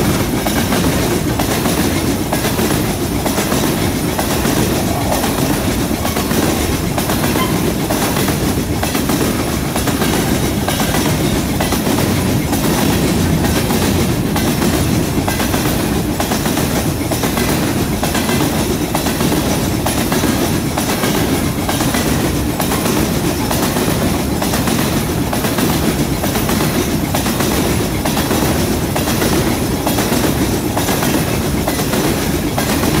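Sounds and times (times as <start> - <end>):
freight train rolling past: 0.0 - 33.0.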